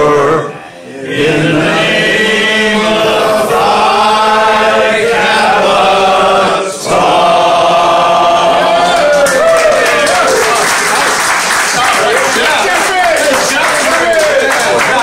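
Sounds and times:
group of men singing: 0.0 - 9.2.

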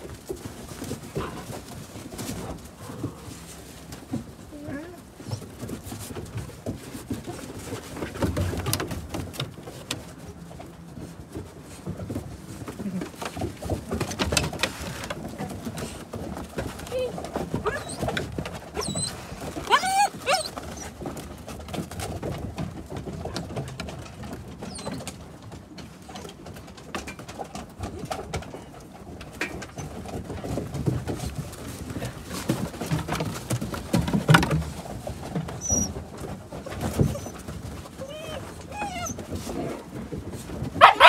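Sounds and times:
dogs scuffling on wooden deck: 0.0 - 41.0
puppy whines: 16.9 - 21.0, 24.7 - 25.0, 35.6 - 36.0, 36.6 - 39.6, 40.8 - 41.0.

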